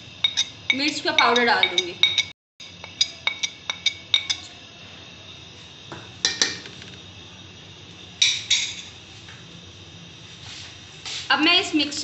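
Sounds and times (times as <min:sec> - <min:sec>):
glass bowl clinking on pan: 0:00.2 - 0:04.5.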